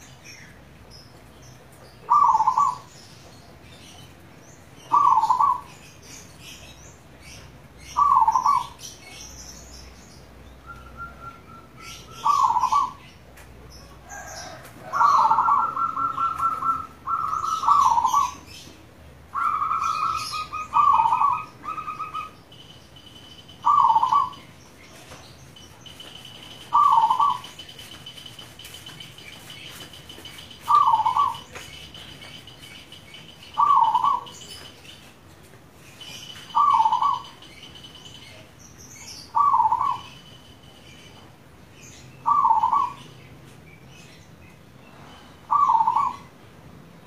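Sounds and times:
small birds chirping: 0.0s - 46.5s
dove cooing: 2.0s - 2.9s, 4.9s - 5.8s, 8.0s - 8.8s, 10.7s - 13.1s, 14.0s - 18.6s, 19.3s - 22.4s, 23.6s - 25.1s, 26.4s - 27.6s, 30.6s - 32.7s, 33.5s - 34.7s, 36.5s - 37.4s, 39.3s - 40.2s, 42.2s - 43.0s, 45.5s - 46.3s.

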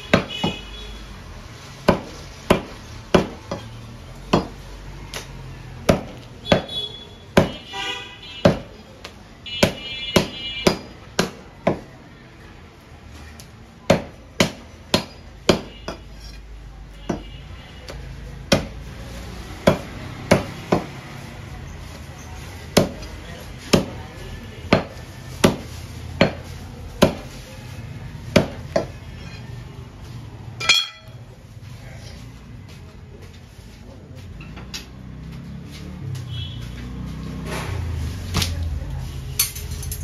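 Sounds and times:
cleaver chopping bone on wood block: 5.9s - 6.7s, 8.4s - 8.7s, 9.6s - 11.8s, 13.9s - 16.1s, 18.5s - 18.7s
ringing clatter: 30.6s - 31.2s.

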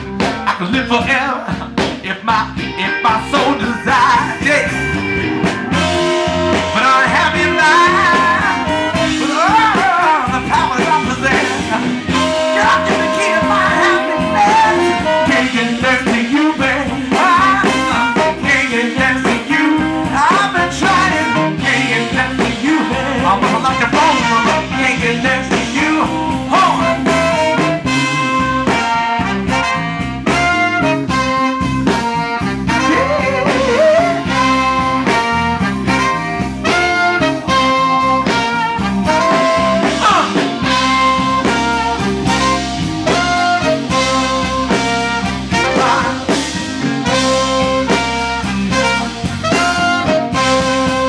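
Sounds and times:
funk band playing: 0.0s - 51.0s
saxophone and trumpet horn lines: 0.0s - 51.0s.

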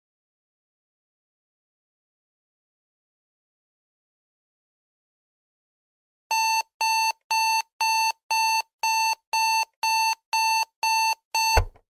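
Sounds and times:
alarm clock beeping: 6.3s - 11.7s
brief low thump: 11.6s - 11.8s.

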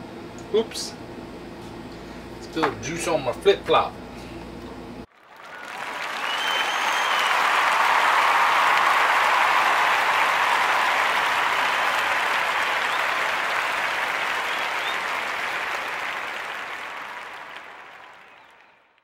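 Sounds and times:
audience applause: 5.1s - 19.0s.

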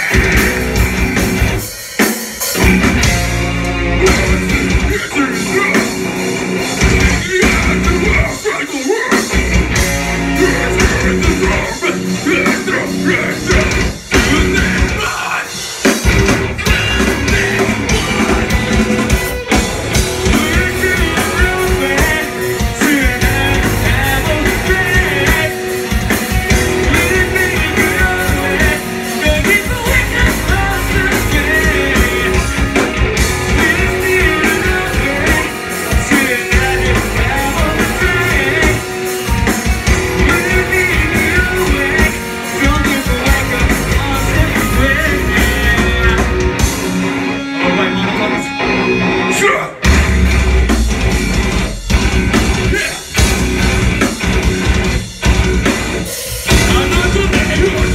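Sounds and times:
metal band playing live: 0.0s - 57.9s
person singing into a microphone: 10.4s - 15.7s, 20.2s - 25.7s, 26.7s - 32.8s, 33.5s - 38.9s, 40.2s - 46.5s, 56.5s - 57.9s.

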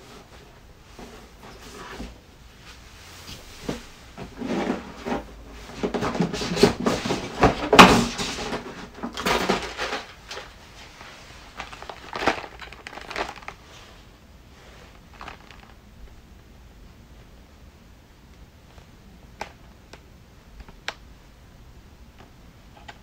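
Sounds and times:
scraping: 0.9s - 15.8s
packaging rustling: 5.8s - 14.0s, 14.6s - 15.8s.

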